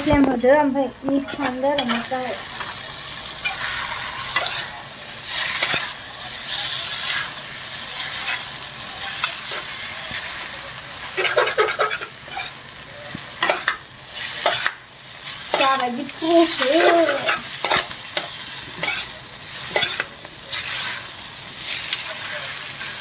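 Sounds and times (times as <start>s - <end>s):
food sizzling in a pan: 0.0s - 23.0s
spatula scraping and clinking pan: 3.4s - 6.0s, 11.2s - 12.6s, 13.4s - 13.8s, 15.4s - 21.0s.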